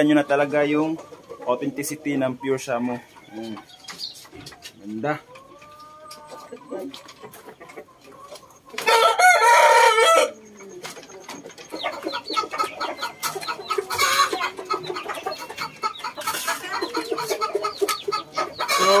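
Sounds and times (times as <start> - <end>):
chickens clucking: 0.0 - 19.0
rooster crowing: 8.8 - 10.4.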